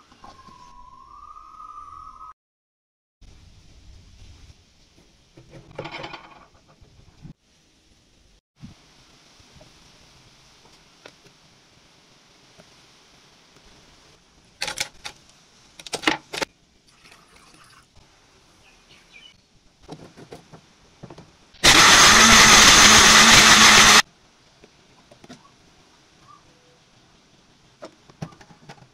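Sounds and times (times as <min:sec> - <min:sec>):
blender motor running: 0:21.6 - 0:24.0.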